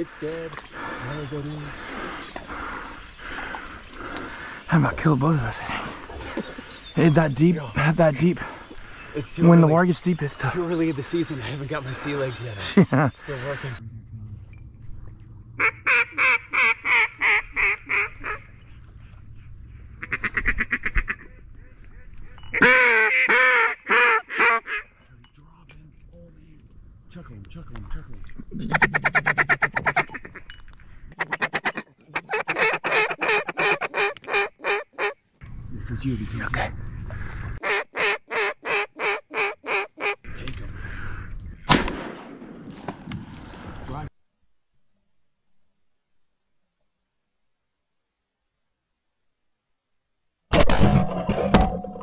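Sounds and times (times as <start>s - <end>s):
duck call quacks: 15.6s - 18.4s, 20.0s - 21.4s, 22.5s - 24.8s, 28.8s - 30.4s, 31.2s - 35.2s, 37.6s - 40.3s
duck call feed chatter: 31.2s - 35.2s, 37.6s - 40.3s
loud shotgun shot: 41.7s - 43.3s.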